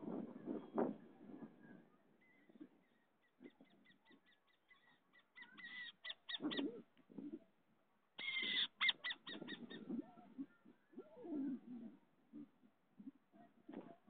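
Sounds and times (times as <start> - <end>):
owl clicking chatter: 8.2 - 9.9.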